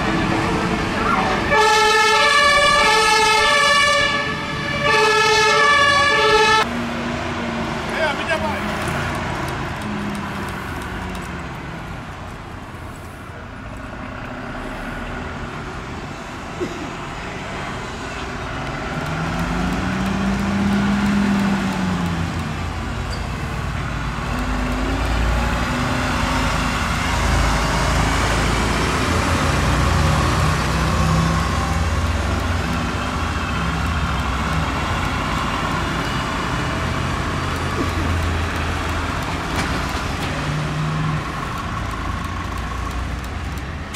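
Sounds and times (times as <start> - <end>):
diesel fire engines pulling out: 0.0 - 43.9
truck accelerating: 0.0 - 43.9.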